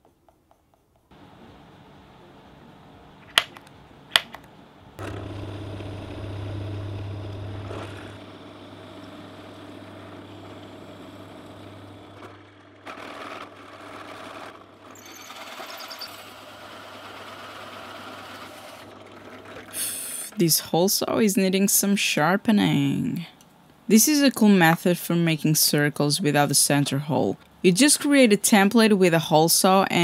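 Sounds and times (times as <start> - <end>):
drill bit cutting wood: 5.0 - 18.9
drill press motor humming: 5.0 - 19.8.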